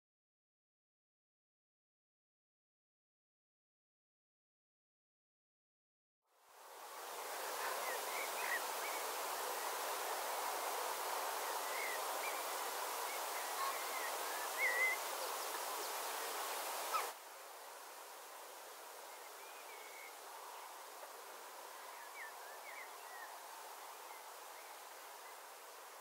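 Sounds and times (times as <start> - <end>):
open-air background hiss: 6.3 - 26.0
small birds chirping: 7.4 - 17.2.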